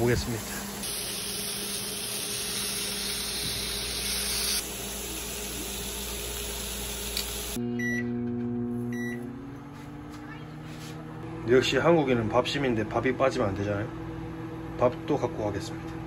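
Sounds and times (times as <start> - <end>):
microwave oven humming: 0.0 - 16.0
meat sizzling on a grill pan: 0.8 - 7.6
keypad beeps: 7.8 - 8.1, 8.9 - 9.2.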